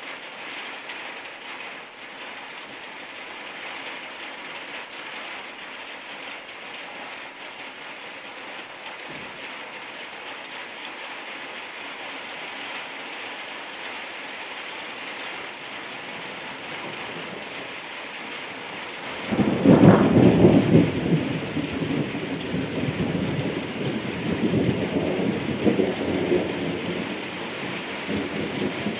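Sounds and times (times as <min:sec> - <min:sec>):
rain falling: 0:00.0 - 0:28.9
thunderclap and rumbling: 0:16.2 - 0:17.8, 0:18.7 - 0:28.9.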